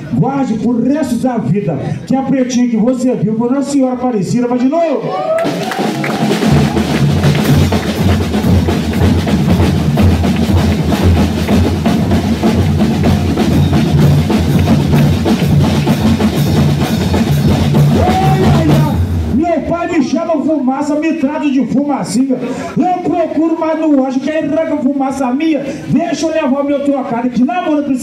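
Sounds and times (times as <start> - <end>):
snare drums beating: 5.4 - 19.4
bass drum beating: 5.4 - 19.7.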